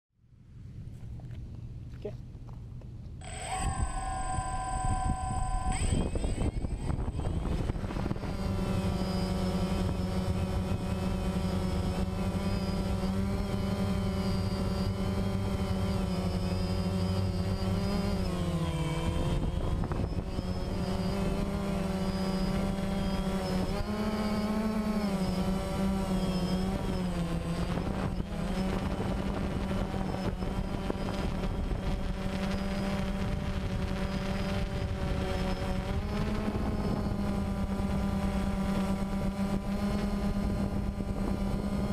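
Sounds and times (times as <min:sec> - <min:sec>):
quadcopter propellers buzzing: 0:03.2 - 0:41.9.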